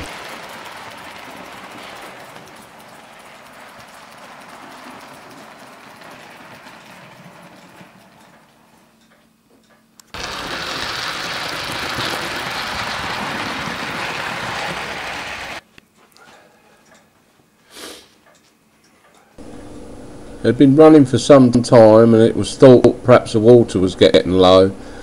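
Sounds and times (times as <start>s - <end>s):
model steam train clattering: 0.0s - 15.6s.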